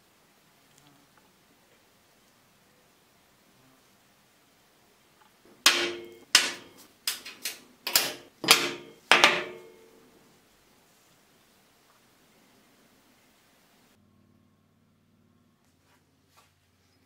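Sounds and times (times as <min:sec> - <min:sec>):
metal parts clanking on workbench: 0:05.7 - 0:09.8.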